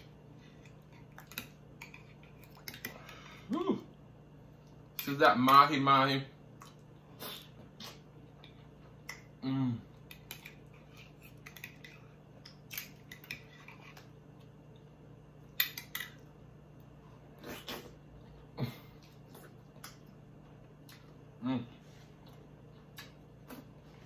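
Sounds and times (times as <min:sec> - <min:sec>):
person humming: 0:03.5 - 0:03.9, 0:09.4 - 0:09.9
wet chewing: 0:10.0 - 0:14.9.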